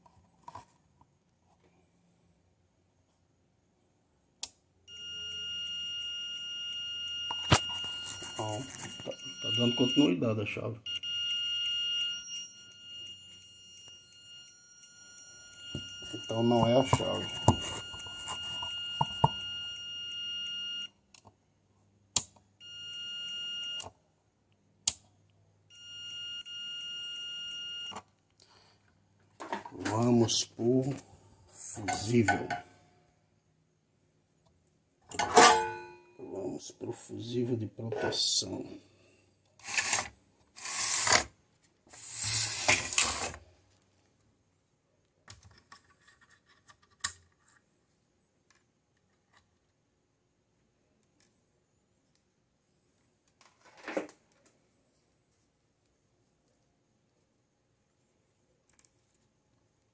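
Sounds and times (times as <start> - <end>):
high-pitched multimeter beeps: 4.9 - 21.0, 22.6 - 23.9, 25.7 - 28.0.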